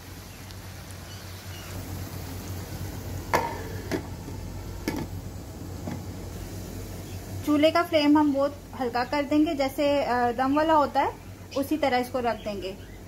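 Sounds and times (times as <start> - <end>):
meat sizzling in a pan: 0.0 - 8.1.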